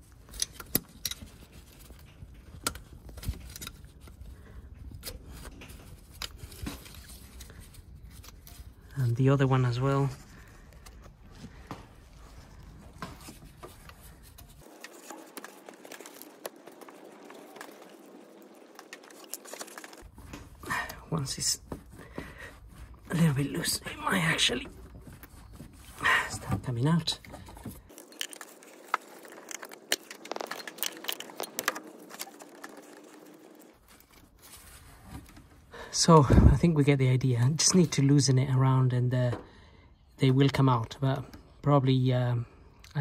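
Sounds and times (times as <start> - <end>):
hand tool clicking and scraping: 0.2 - 4.2.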